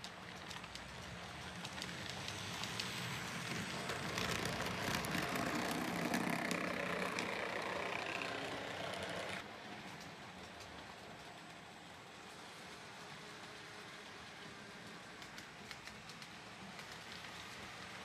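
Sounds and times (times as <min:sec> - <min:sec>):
wheels clicking over rail joints: 0:00.0 - 0:11.4
model train rattling whirr: 0:00.0 - 0:18.0.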